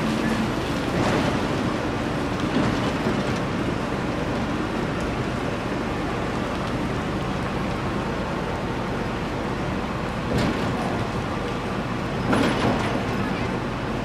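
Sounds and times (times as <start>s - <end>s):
carriage rolling on rails: 12.2s - 13.6s.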